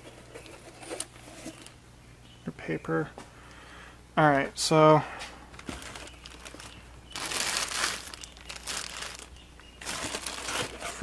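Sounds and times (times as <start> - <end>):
plastic bag crinkling: 5.5 - 11.0.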